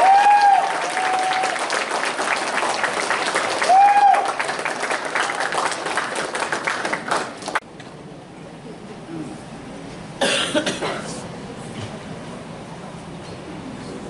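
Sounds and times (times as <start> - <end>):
whooping cheer: 0.0 - 2.0, 3.5 - 4.7
audience applauding: 0.0 - 7.6.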